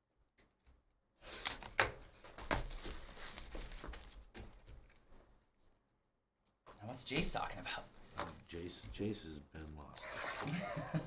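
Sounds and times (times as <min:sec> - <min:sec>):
wrapper crinkling: 0:01.3 - 0:05.0
cardboard rustle: 0:01.5 - 0:05.1.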